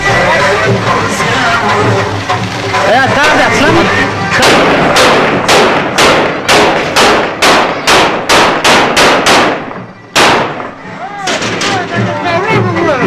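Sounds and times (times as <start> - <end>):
gunshots with echo: 4.3 - 11.9.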